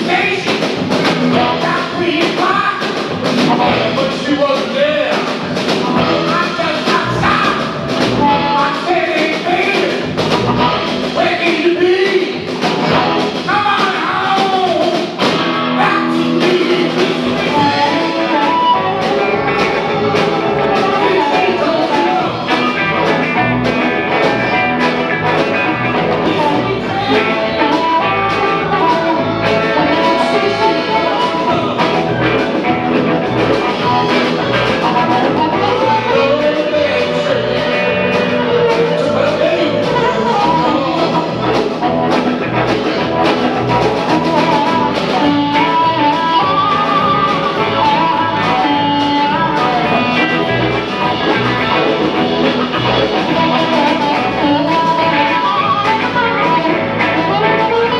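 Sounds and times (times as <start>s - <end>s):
rock band playing blues: 0.0s - 57.9s
lead vocal bending in pitch: 26.0s - 42.0s.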